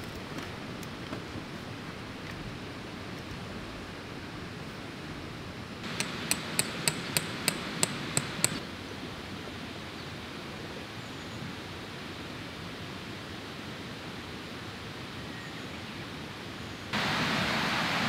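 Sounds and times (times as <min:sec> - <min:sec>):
outdoor hiss: 0:00.0 - 0:18.0
hammer striking metal stake: 0:05.8 - 0:08.6.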